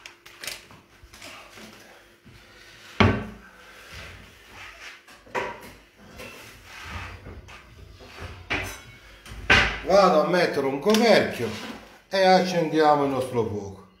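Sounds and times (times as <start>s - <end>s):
kitchen knocks and clatter: 5.2s - 6.3s, 7.3s - 9.9s.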